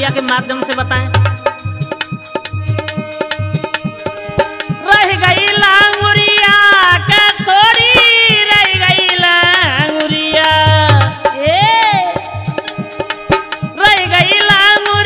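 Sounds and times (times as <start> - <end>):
sliding lead melody: 0.0 - 6.9
hand drum beat: 0.0 - 15.0.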